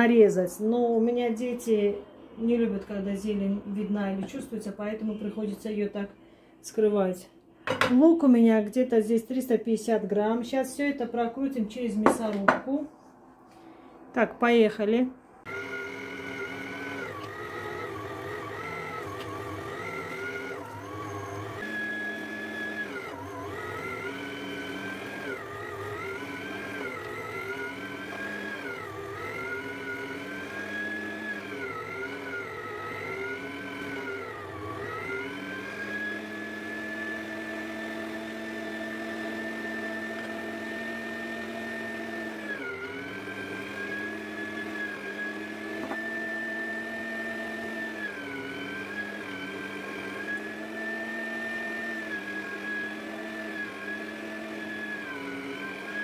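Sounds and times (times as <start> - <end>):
electric meat grinder motor whine: 15.5 - 56.0.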